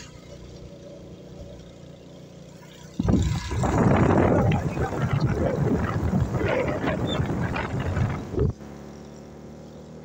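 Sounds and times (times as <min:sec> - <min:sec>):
vehicle engine hum: 0:00.0 - 0:10.0
wind buffeting microphone: 0:03.0 - 0:08.6.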